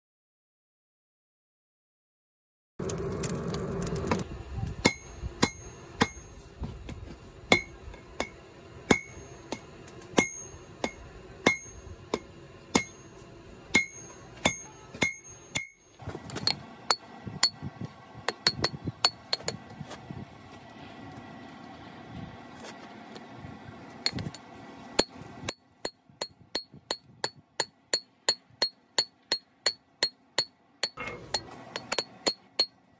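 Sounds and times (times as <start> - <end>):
hammer striking iron on anvil: 4.8 - 6.5, 7.5 - 19.7, 24.0 - 32.9.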